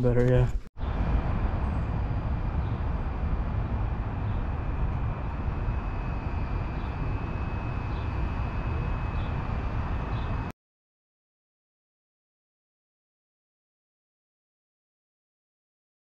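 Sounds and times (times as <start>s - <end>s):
faint high whine: 0.0s - 10.5s
heavy low rumble: 0.0s - 10.5s.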